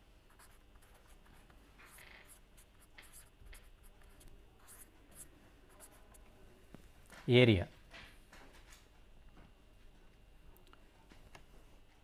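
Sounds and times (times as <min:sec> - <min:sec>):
pen scratching on paper: 0:00.3 - 0:06.2.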